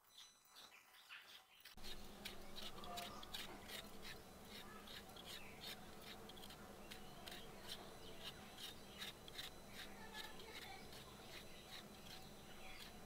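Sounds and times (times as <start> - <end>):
knife scraping potato skin: 1.0 - 13.0.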